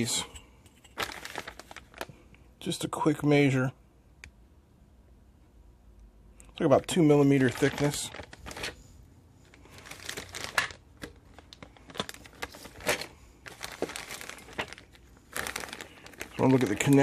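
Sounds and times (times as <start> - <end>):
plastic bags crinkling: 0.8 - 2.3, 6.8 - 8.8, 9.4 - 17.0.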